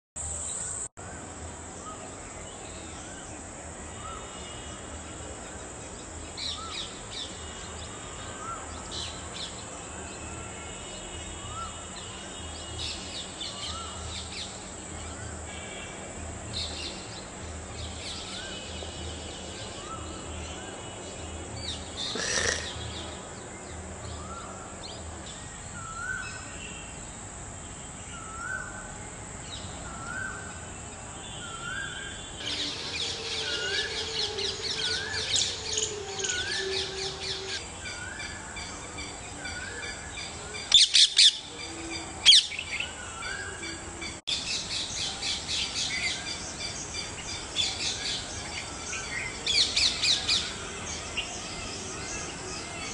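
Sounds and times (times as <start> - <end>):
birds chirping: 16.6 - 26.2, 30.9 - 52.9.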